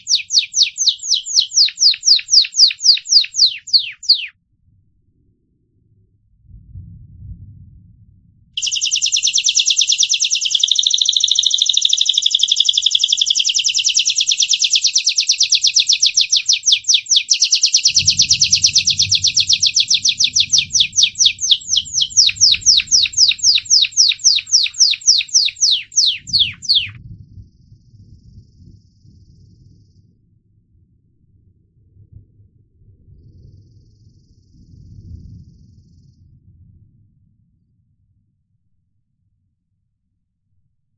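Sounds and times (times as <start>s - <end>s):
canary trilling: 0.0s - 4.3s, 8.6s - 27.0s.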